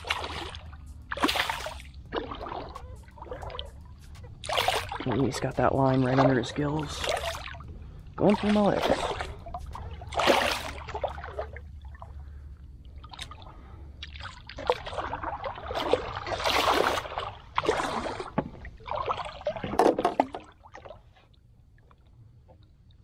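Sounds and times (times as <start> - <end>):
fish thrashing at the surface: 0.0 - 3.7, 4.4 - 7.6, 8.2 - 11.6, 14.1 - 20.5
water splashing and sloshing: 0.0 - 23.0.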